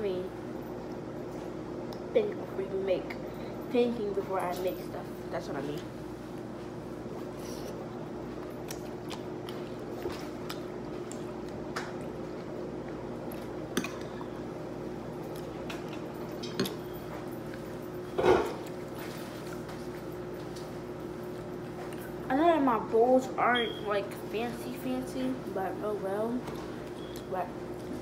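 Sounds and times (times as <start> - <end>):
low background hum: 0.0 - 28.0
wet chewing and lip-smacking: 7.7 - 14.4.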